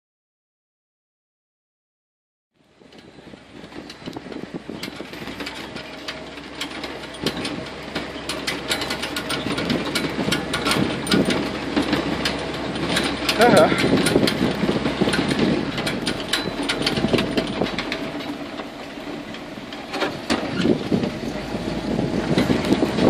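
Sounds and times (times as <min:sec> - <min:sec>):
vehicle engine drone: 0:02.6 - 0:23.0
clicks and rattles: 0:02.9 - 0:21.4.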